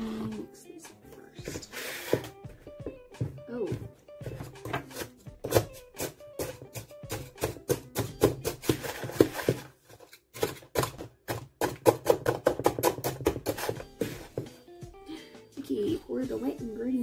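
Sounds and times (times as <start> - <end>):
wooden spoon knocking plastic bowl: 2.2 - 9.7, 10.4 - 14.5.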